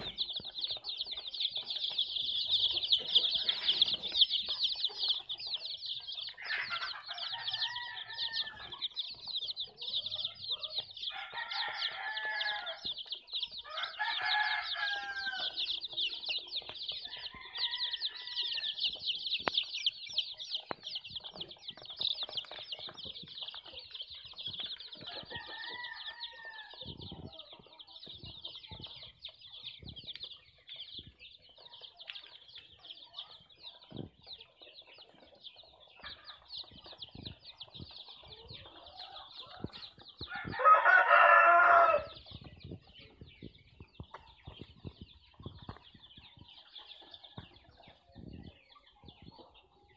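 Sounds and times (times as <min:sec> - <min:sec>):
chicks peeping: 0:00.0 - 0:49.9
louder chick calls: 0:01.9 - 0:08.9, 0:38.4 - 0:42.8.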